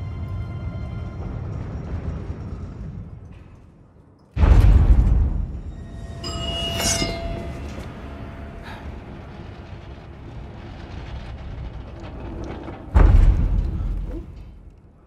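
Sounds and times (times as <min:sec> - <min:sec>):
steady low rumble: 0:00.0 - 0:15.0
shimmering ringing swell: 0:05.8 - 0:09.1.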